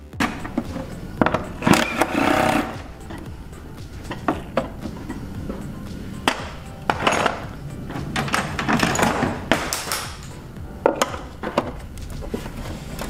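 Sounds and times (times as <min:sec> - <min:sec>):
metal hand tools clanking: 0:00.2 - 0:13.0.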